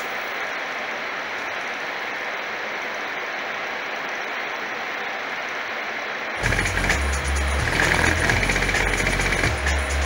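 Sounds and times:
spinning fan rushing air: 0:00.0 - 0:10.0.

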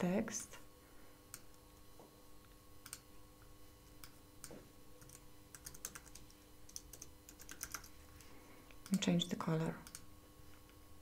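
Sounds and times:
computer keyboard clicks: 0:02.8 - 0:03.0, 0:05.0 - 0:07.9, 0:09.8 - 0:10.1
computer mouse clicks: 0:02.8 - 0:03.1, 0:03.9 - 0:09.0, 0:09.8 - 0:10.1.

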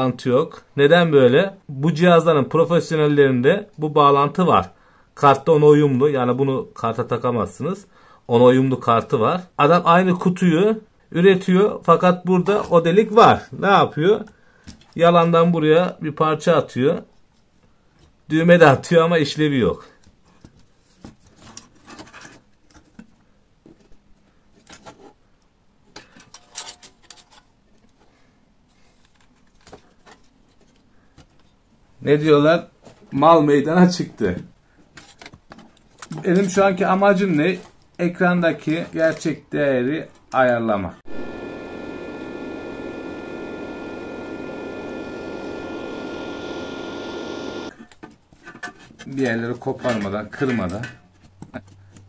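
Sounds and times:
welding machine cooling fan whooshing: 0:41.1 - 0:47.7.

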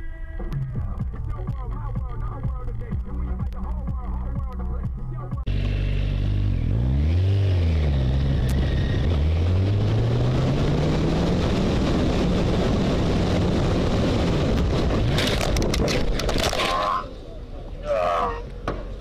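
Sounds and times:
road and wind noise: 0:00.5 - 0:19.0
engine speeding up: 0:05.5 - 0:16.5
sharp cracks and knocks: 0:14.6 - 0:16.8.

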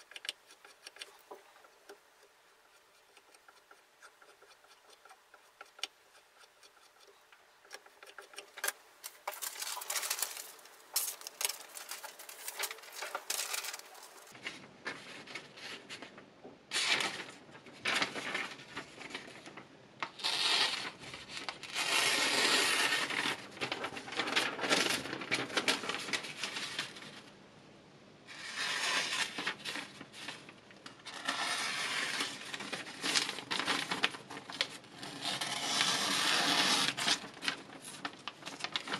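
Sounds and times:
blade slicing paper: 0:07.7 - 0:14.4, 0:20.2 - 0:26.2, 0:31.1 - 0:38.9
paper tearing and crinkling: 0:07.8 - 0:15.5, 0:16.7 - 0:27.0, 0:28.4 - 0:38.9.

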